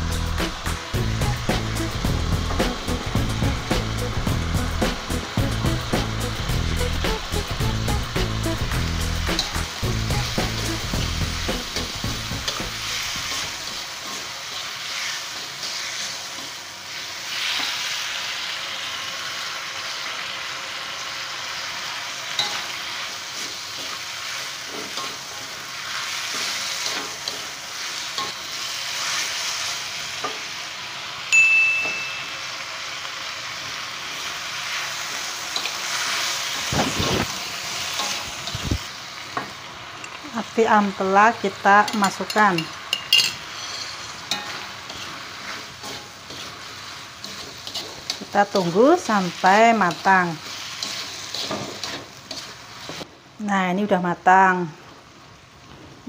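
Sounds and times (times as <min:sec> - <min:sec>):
vegetables sizzling in a wok: 0:00.0 - 0:56.0
metal spatula scraping a wok: 0:06.7 - 0:18.0, 0:22.3 - 0:29.6, 0:35.6 - 0:38.9, 0:41.8 - 0:53.1
high ringing tone: 0:31.3 - 0:32.6, 0:43.1 - 0:44.2.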